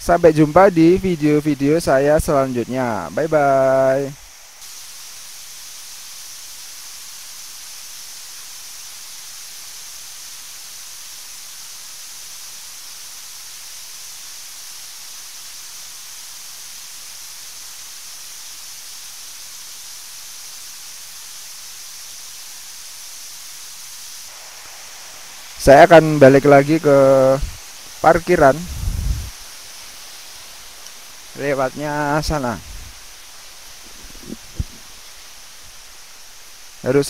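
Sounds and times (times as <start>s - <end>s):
waterfall rushing: 23.6s - 37.0s.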